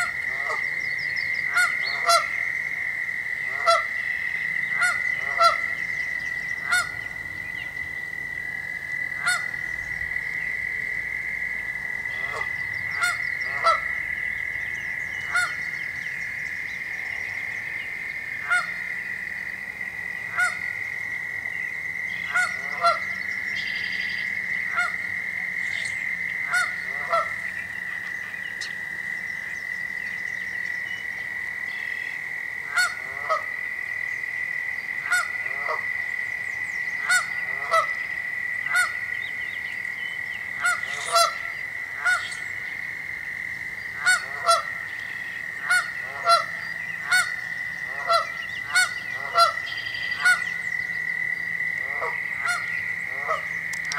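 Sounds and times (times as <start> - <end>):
goose honking: 1.5 - 2.3, 3.5 - 3.9, 4.8 - 5.7, 6.7 - 7.0, 9.2 - 9.5, 12.2 - 13.8, 18.5 - 18.7, 20.3 - 20.6, 22.3 - 23.0, 24.7 - 25.0, 26.5 - 27.4, 32.7 - 33.4, 35.1 - 35.8, 40.6 - 42.4, 44.0 - 44.7, 45.6 - 47.3, 47.9 - 50.4, 51.8 - 53.9.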